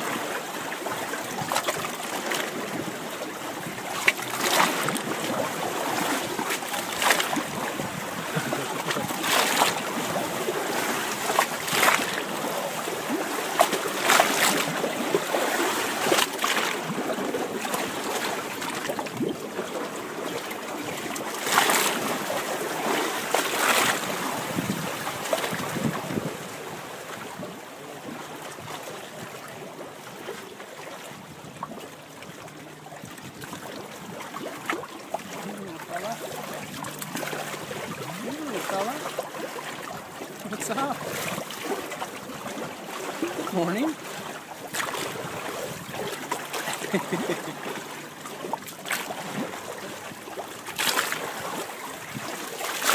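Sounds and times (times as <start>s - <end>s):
water lapping around boat: 0.0s - 52.9s
wind on microphone: 7.3s - 10.4s, 24.0s - 28.0s, 37.6s - 38.5s.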